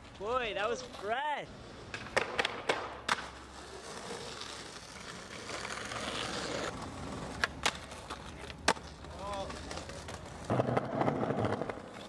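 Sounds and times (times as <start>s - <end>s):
skateboard wheels rolling on bricks: 0.0s - 12.0s
skateboard clacking against curb: 1.9s - 3.4s, 7.3s - 12.0s.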